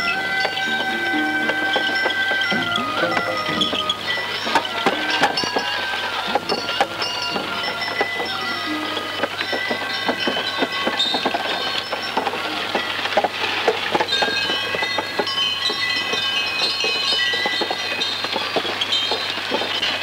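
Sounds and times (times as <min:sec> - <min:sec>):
bells jingling: 0:00.0 - 0:20.0
wooden cart wheels clattering: 0:00.0 - 0:20.0.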